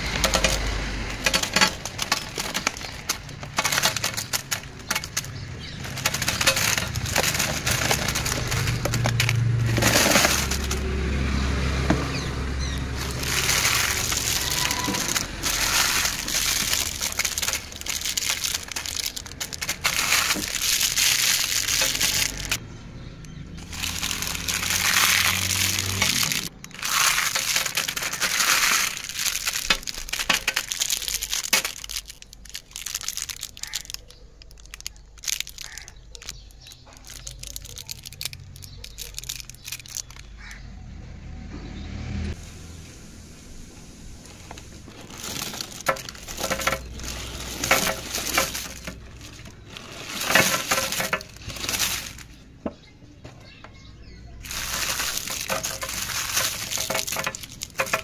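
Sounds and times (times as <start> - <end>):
plastic candy wrappers crinkling: 0.0 - 22.6, 23.3 - 40.6, 44.2 - 53.6, 54.4 - 58.0.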